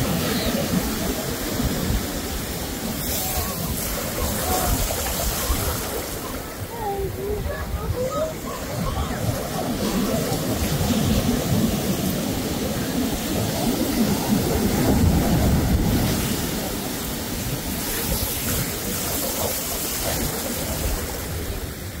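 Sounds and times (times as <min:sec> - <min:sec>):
ocean surf washing up beach: 0:00.0 - 0:22.0.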